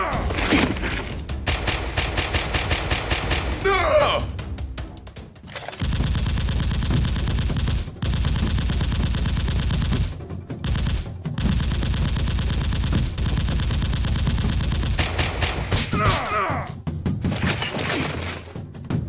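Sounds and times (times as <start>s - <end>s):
automatic gunfire bursts: 1.5s - 3.6s, 5.8s - 15.7s.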